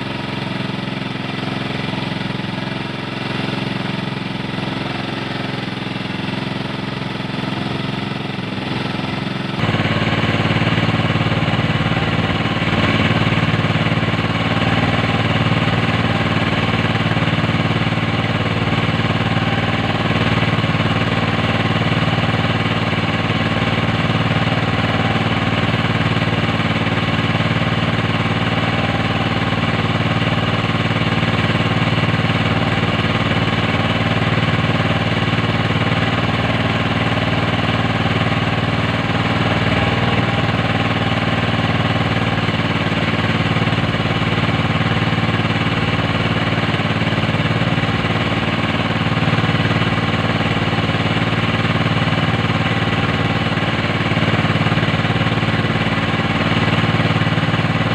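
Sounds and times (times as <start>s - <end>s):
boat engine running: 0.0s - 57.9s.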